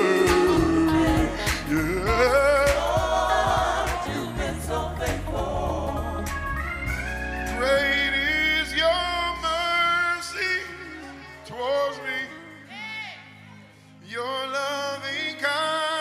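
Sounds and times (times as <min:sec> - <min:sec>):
band accompaniment: 0:00.0 - 0:10.9
gospel singers: 0:00.0 - 0:16.0.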